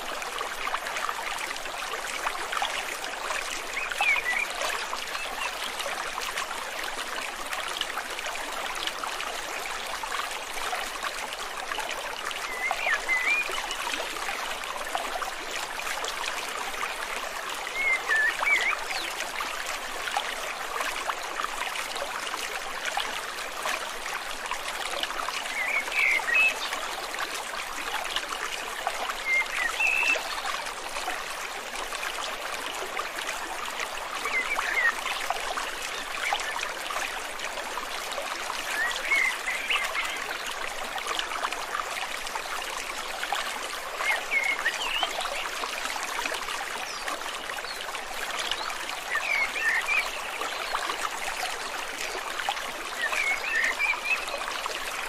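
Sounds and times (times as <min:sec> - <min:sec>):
stream babbling over stones: 0:00.0 - 0:55.0.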